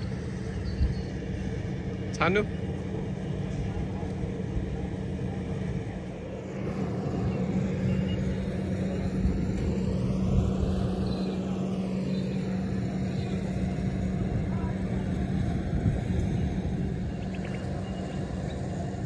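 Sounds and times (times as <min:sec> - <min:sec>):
engine drone: 0:00.0 - 0:19.0
rushing noise: 0:06.0 - 0:19.0.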